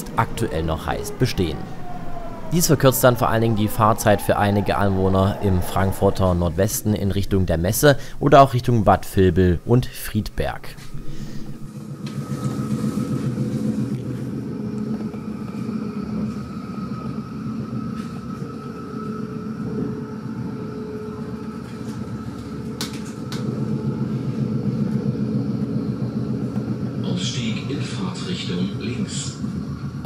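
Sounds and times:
train wheels rumbling on rails: 0.0s - 8.6s, 10.6s - 30.0s.

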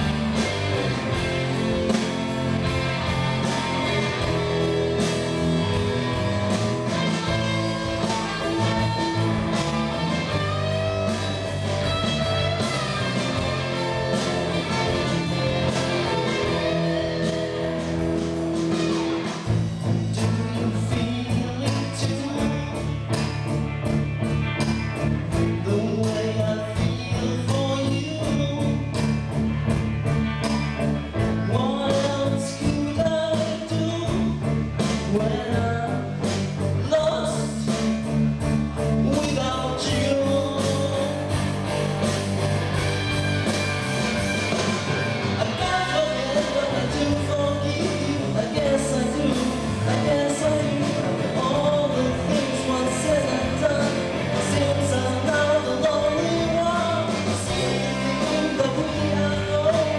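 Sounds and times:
rock band playing: 0.0s - 59.9s
male singer: 19.9s - 23.3s, 25.4s - 29.2s, 31.3s - 38.1s, 38.9s - 41.4s, 45.4s - 59.9s.

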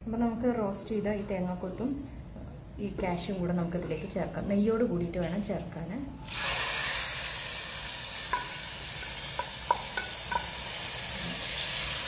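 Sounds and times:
hot oil sizzling: 6.2s - 12.0s
wooden spatula knocking on pan: 8.3s - 10.6s.

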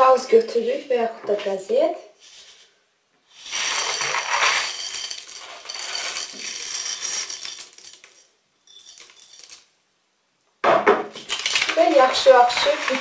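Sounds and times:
seeds rattling onto paper: 3.4s - 9.7s, 11.2s - 13.0s.

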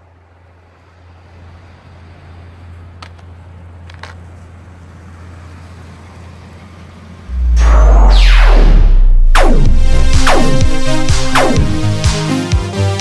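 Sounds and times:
car driving slowly: 0.0s - 7.4s.

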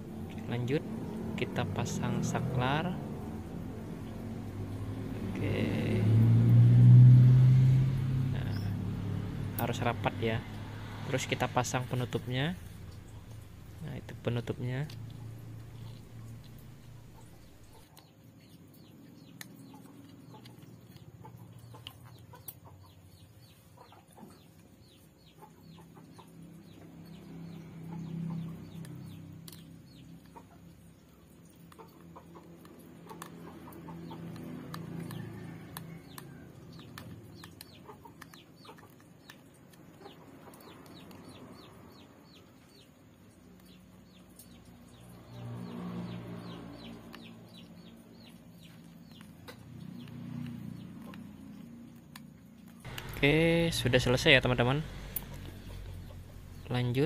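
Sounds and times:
chickens clucking: 19.2s - 29.2s, 30.0s - 42.5s.

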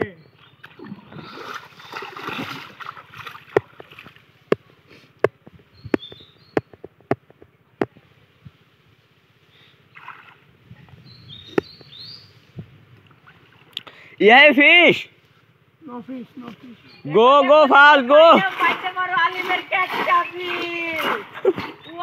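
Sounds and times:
water splashing and sloshing: 0.4s - 4.6s, 9.8s - 10.6s, 13.0s - 13.9s, 18.1s - 22.0s.

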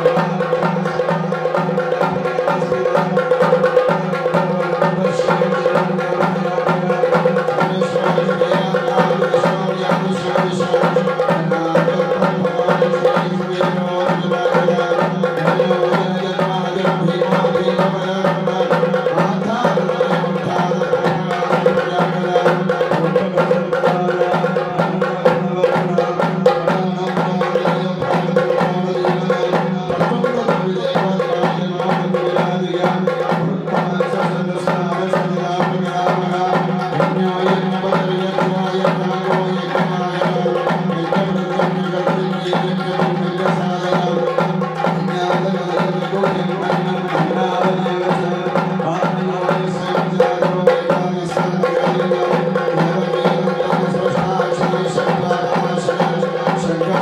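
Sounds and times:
rapid hand drum strokes: 0.0s - 57.0s.

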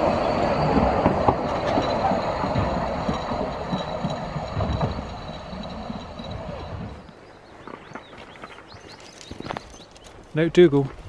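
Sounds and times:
train wheels clattering over rails: 0.0s - 7.2s.

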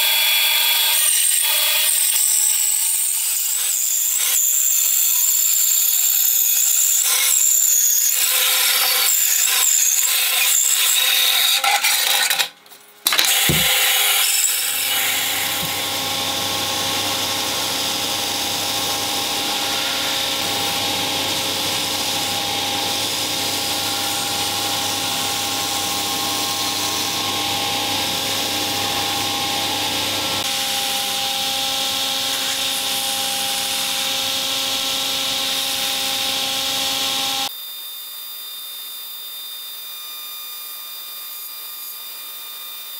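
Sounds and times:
band saw cutting wood: 0.0s - 37.5s
belt grinder sanding wood: 13.1s - 37.5s.

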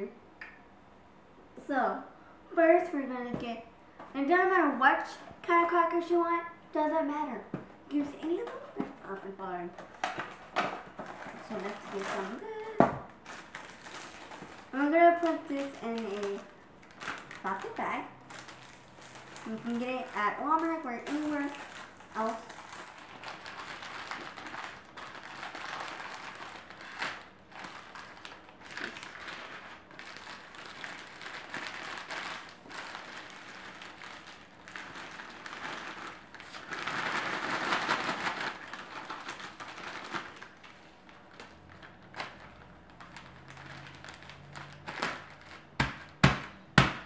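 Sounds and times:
foil and plastic bag crinkling: 7.9s - 47.0s
bag slapped on countertop: 45.8s - 47.0s.

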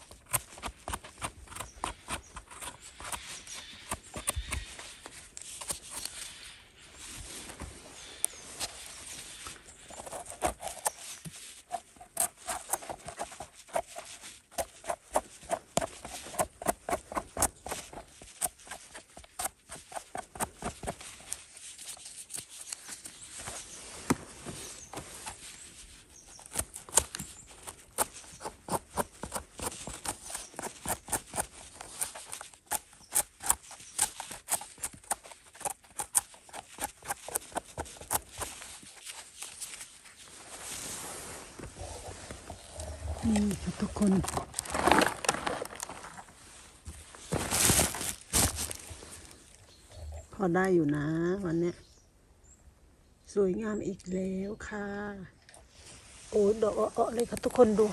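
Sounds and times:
footsteps crunching dry leaves: 38.6s - 49.6s.

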